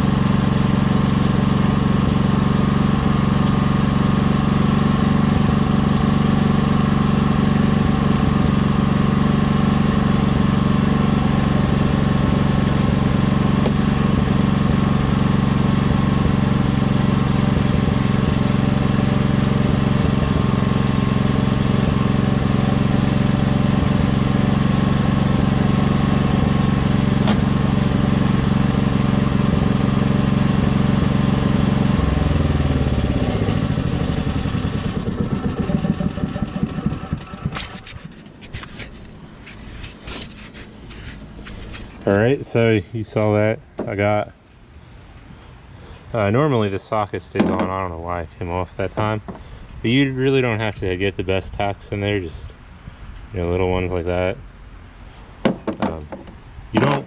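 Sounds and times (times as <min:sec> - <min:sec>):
small engine running: 0:00.0 - 0:42.5.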